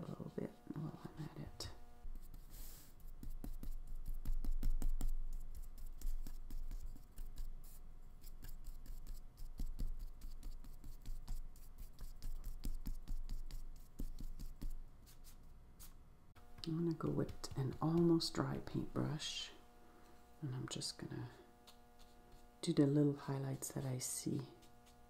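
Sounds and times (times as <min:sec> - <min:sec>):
paintbrush scrubbing on paper: 0:02.1 - 0:16.0, 0:21.6 - 0:22.7, 0:24.0 - 0:25.0.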